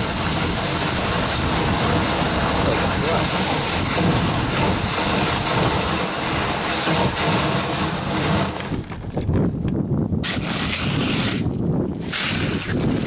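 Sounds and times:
slush ice scraping kayak hull: 0.0 - 9.2, 10.2 - 13.0
paddle crunching through slush: 12.0 - 13.0.

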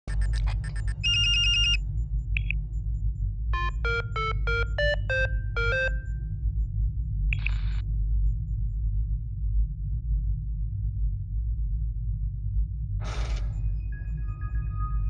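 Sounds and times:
low cockpit hum: 0.0 - 14.9
beeped tune: 0.1 - 1.8, 3.6 - 6.1
electronic chirp: 0.1 - 1.8, 3.6 - 6.2
fast electronic ringing: 0.1 - 1.8, 3.6 - 6.1.

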